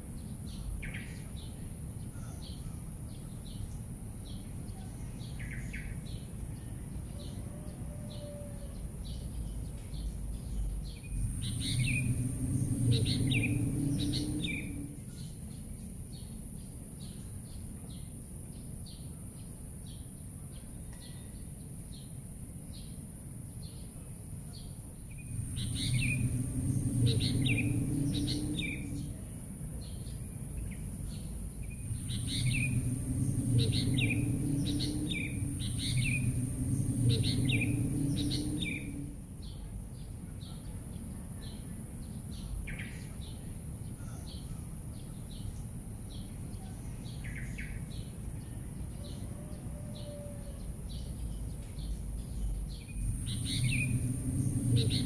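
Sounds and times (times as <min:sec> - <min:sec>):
small birds chirping: 0:00.0 - 0:07.5, 0:08.1 - 0:23.0, 0:23.6 - 0:55.0
steady high-pitched hiss: 0:00.0 - 0:55.0
low rumble: 0:08.7 - 0:16.5, 0:25.0 - 0:40.3, 0:50.0 - 0:55.0.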